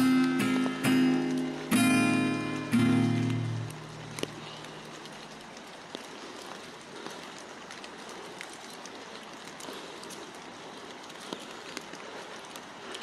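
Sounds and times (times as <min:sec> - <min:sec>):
sharp drop ticks: 0:00.0 - 0:05.2
rain pattering on leaves: 0:00.0 - 0:13.0.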